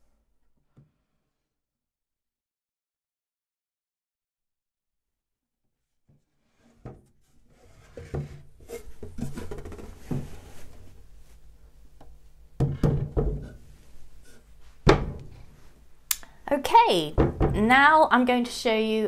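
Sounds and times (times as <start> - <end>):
drawer knocking on wooden top: 12.6 - 13.6.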